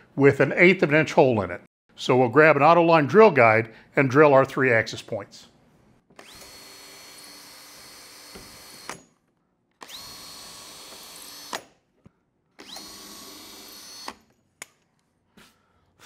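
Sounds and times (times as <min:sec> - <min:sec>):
cordless drill whining: 0:06.1 - 0:09.2, 0:09.8 - 0:11.8, 0:12.6 - 0:14.4.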